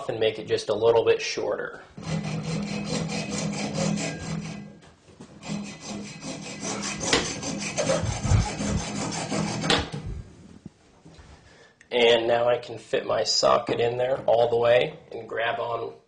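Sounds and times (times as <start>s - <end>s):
hacksaw cutting metal: 2.0s - 4.8s, 5.4s - 10.0s.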